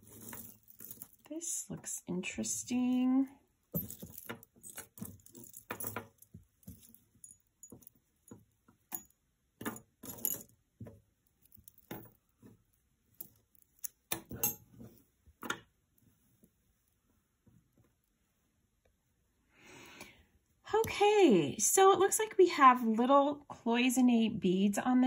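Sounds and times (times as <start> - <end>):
jewelry clinking and jingling: 0.0 - 1.6, 2.3 - 14.9.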